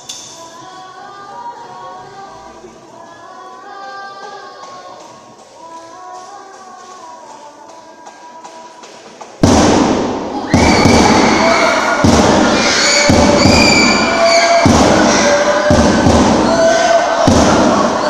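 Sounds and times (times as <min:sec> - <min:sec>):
heavy thuds of stamping on stage: 0:09.4 - 0:18.0
group humming: 0:09.8 - 0:18.0
voices crying out high-pitched: 0:10.4 - 0:18.0.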